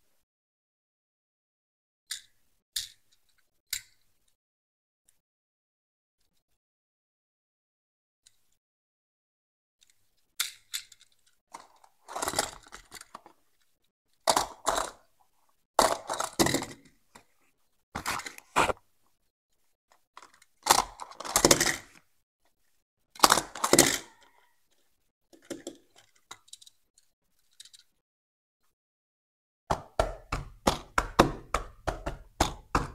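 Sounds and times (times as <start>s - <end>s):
toy car rattling and clicking: 10.4s - 13.4s, 14.2s - 15.0s, 15.8s - 16.9s, 20.2s - 22.0s, 23.2s - 24.3s, 25.4s - 28.0s.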